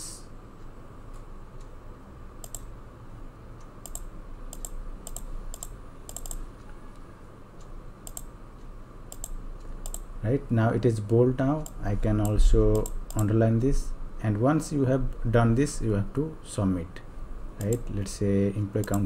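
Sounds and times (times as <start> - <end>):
faint steady hum: 0.0 - 19.0
computer mouse clicking: 2.4 - 2.8, 3.6 - 8.4, 9.1 - 10.1, 11.0 - 13.3, 17.6 - 18.1, 18.8 - 19.0.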